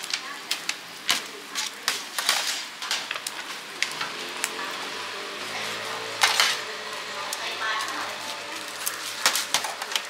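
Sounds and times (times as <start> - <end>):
food sizzling in a wok: 0.0 - 10.0
metal spatula scraping pan: 5.4 - 6.9.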